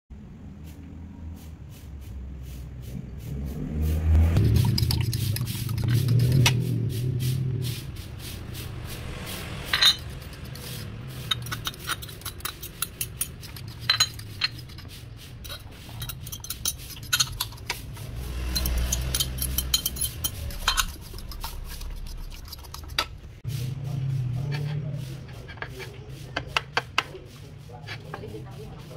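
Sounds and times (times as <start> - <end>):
fork scraping ceramic bowl: 4.4 - 6.6, 9.7 - 23.2, 24.4 - 28.8
ceramic dishes tapping rim: 11.2 - 14.8, 25.4 - 27.2.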